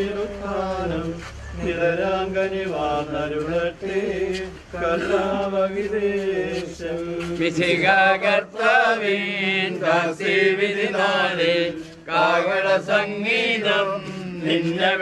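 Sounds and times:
steady low hum: 0:00.0 - 0:15.0
voices singing a hymn: 0:00.0 - 0:15.0.

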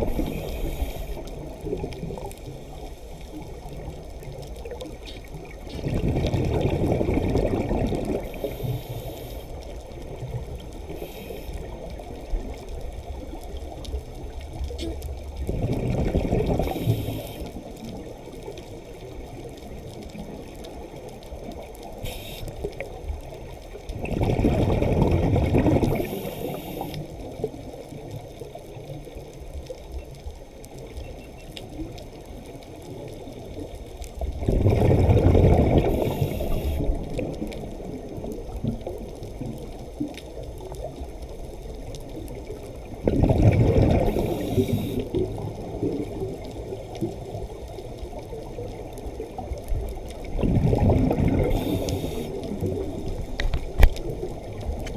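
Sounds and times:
low water hiss: 0:00.0 - 0:54.9
regulator bubbles rushing: 0:05.4 - 0:08.4, 0:15.4 - 0:17.1, 0:24.0 - 0:26.3, 0:34.3 - 0:39.0, 0:42.9 - 0:46.8, 0:48.7 - 0:54.9.

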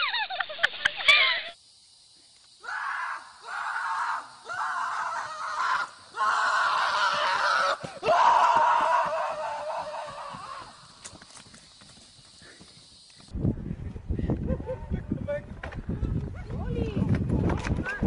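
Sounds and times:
harsh screams: 0:02.6 - 0:10.9.

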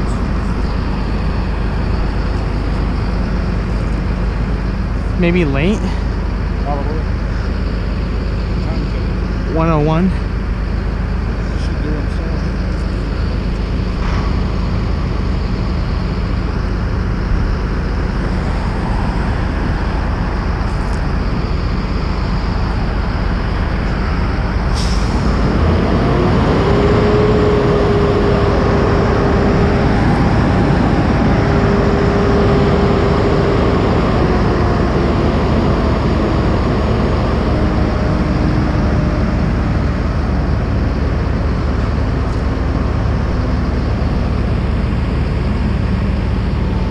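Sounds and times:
road traffic rumble: 0:00.0 - 0:46.9
vehicle passing with whine: 0:00.0 - 0:46.9.

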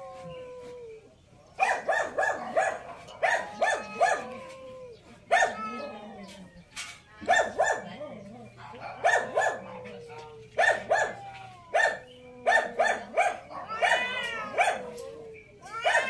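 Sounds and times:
dog barking: 0:01.6 - 0:04.4, 0:05.3 - 0:05.8, 0:07.2 - 0:08.0, 0:08.6 - 0:15.0.

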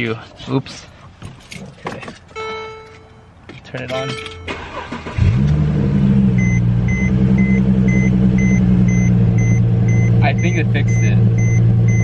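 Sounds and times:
car warning chime beeping: 0:02.4 - 0:05.2, 0:06.4 - 0:12.0
car engine starting and idling: 0:03.7 - 0:12.0.

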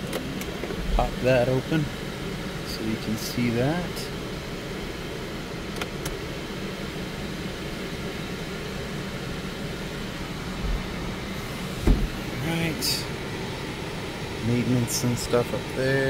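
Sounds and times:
car air conditioning blower rushing: 0:00.0 - 0:16.0
low thump: 0:11.8 - 0:12.2.

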